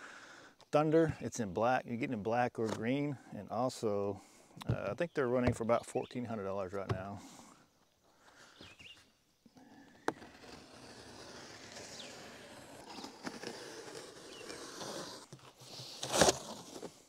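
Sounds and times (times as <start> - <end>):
loud scrape: 10.0 - 16.9
cardboard rustling: 10.0 - 17.0.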